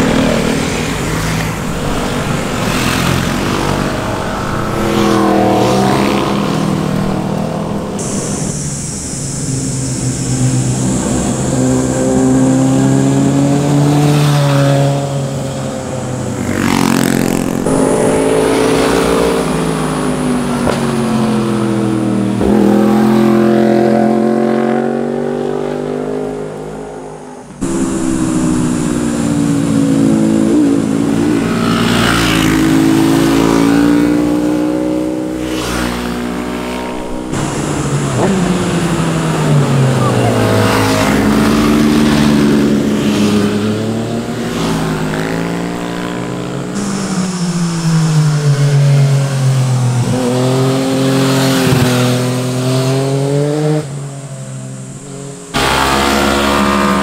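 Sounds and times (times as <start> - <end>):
motorcycles riding past: 0.0 - 8.7, 9.6 - 54.7, 55.5 - 57.0
high-pitched buzz: 16.4 - 21.3, 27.6 - 39.1, 55.5 - 57.0.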